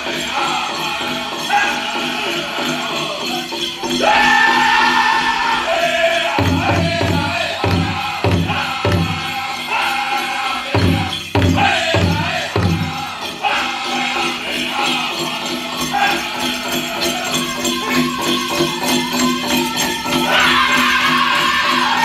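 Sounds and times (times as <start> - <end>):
high-pitched group singing: 0.0 - 22.0
big drum beats: 6.0 - 9.6, 10.7 - 13.5.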